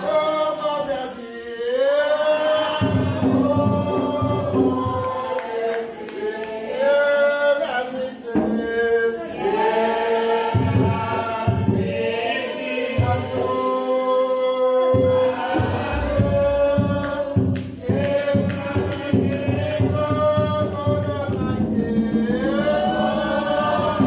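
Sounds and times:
group singing a hymn: 0.0s - 24.0s
tambourine rattling: 0.0s - 24.0s.

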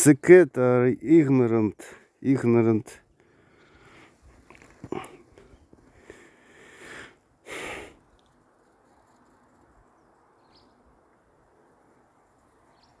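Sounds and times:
person breathy exhale: 6.0s - 8.0s.

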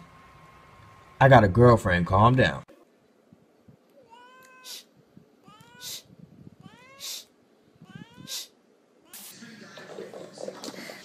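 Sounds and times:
cat meowing: 4.0s - 9.3s
cat hissing: 4.0s - 9.4s.

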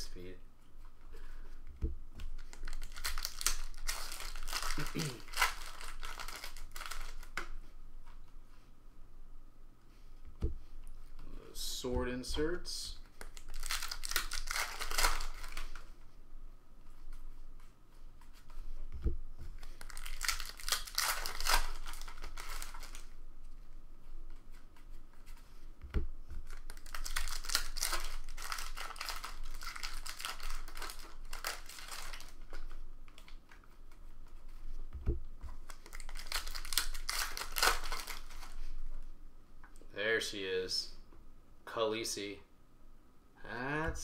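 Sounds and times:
cards rustling: 0.9s - 8.3s, 9.9s - 16.2s, 16.9s - 39.1s
soft low thumps: 1.7s - 2.2s, 10.3s - 10.8s, 18.8s - 19.5s, 34.8s - 35.4s
card wrappers tearing and crinkling: 2.4s - 7.4s, 13.2s - 15.9s, 19.6s - 23.1s, 26.4s - 33.4s, 35.5s - 38.7s.

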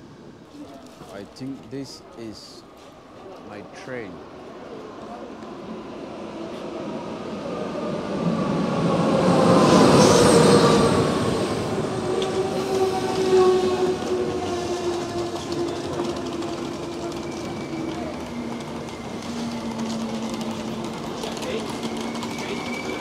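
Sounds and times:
train coaches rolling with whine: 0.0s - 23.0s
locomotive rushing past: 5.2s - 23.0s.

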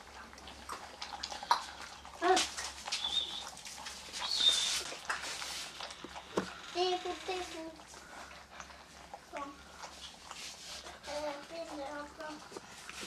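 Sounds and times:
puppies lapping water: 0.0s - 13.0s
thin high chirps: 3.0s - 3.5s, 4.2s - 4.8s
puppy whimpering: 4.2s - 4.9s.

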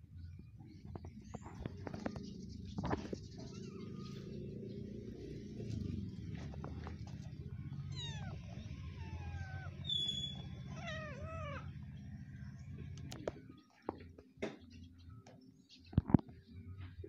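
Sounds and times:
steady low hum: 0.0s - 14.2s
kitten mewing: 7.9s - 11.7s.

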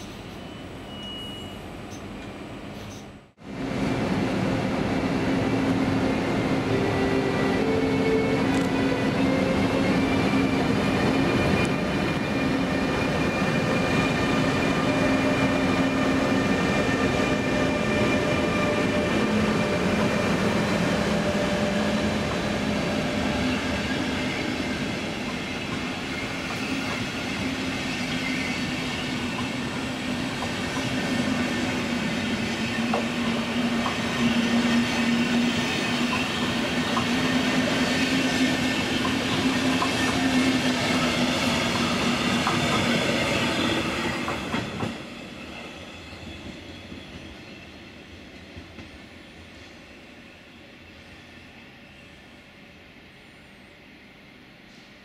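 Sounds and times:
train wheels rumbling on rails: 0.0s - 49.9s.

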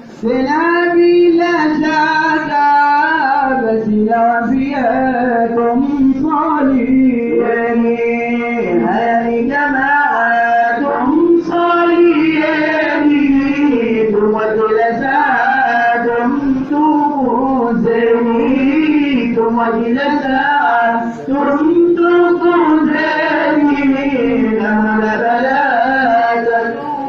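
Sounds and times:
men and boys singing: 0.2s - 27.0s.

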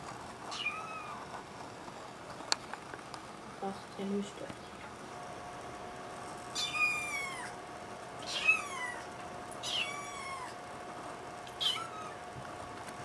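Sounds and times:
kitten meowing: 0.5s - 1.2s, 6.5s - 7.6s, 8.2s - 10.6s, 11.5s - 12.2s.

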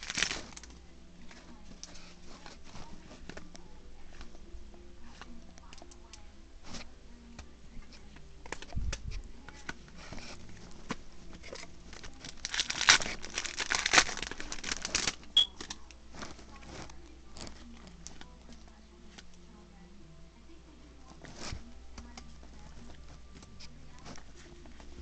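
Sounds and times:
foil wrapper crinkling: 0.0s - 0.7s, 9.6s - 18.5s.

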